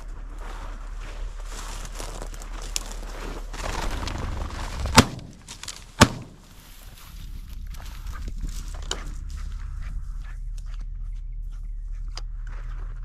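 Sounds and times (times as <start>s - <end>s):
shotgun shots: 4.8s - 6.5s.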